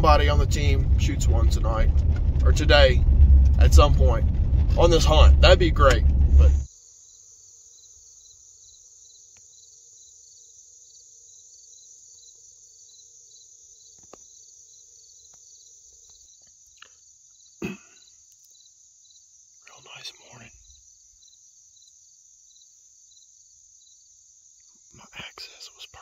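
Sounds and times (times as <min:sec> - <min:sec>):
high-pitched insect trill: 0:06.7 - 0:26.0.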